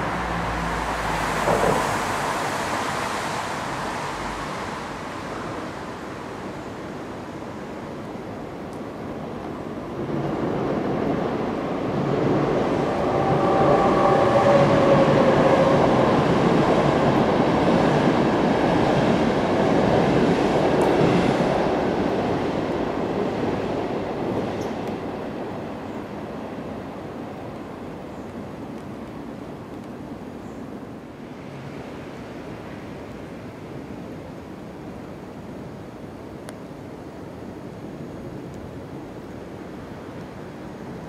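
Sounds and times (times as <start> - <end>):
vehicle passing by rumbling: 0.0 - 5.5.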